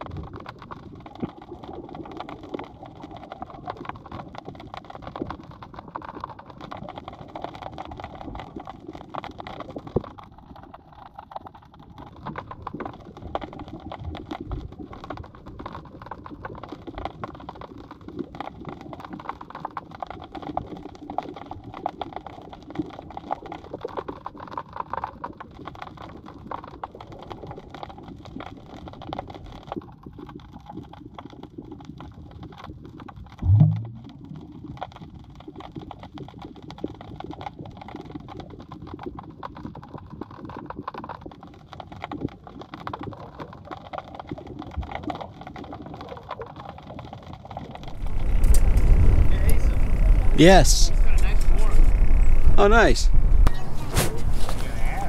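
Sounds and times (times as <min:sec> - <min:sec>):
underwater crackle of clicks: 0:00.0 - 0:50.2
low underwater rumble: 0:33.4 - 0:34.8, 0:47.8 - 0:55.0.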